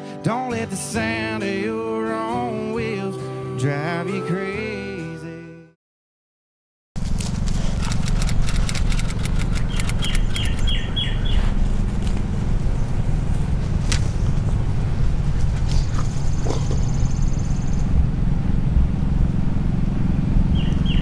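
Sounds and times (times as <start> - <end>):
steady low rumble: 7.0 - 21.0
light clicks: 7.8 - 10.7
bird chirping: 9.6 - 11.5, 15.8 - 17.9, 20.5 - 21.0.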